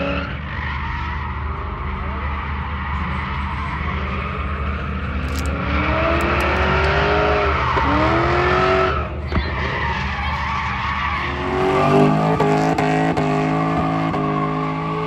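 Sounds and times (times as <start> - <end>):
car engine revving: 1.2 - 15.0.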